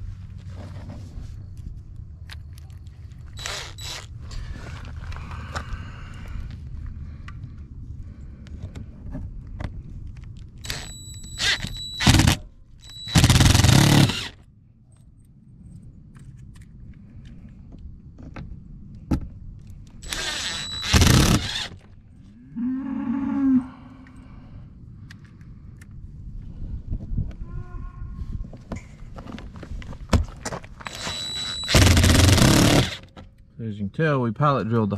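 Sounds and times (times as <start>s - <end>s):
impact driver whirring and hammering: 3.4s - 4.1s, 10.6s - 14.4s, 20.0s - 21.9s, 30.8s - 33.2s.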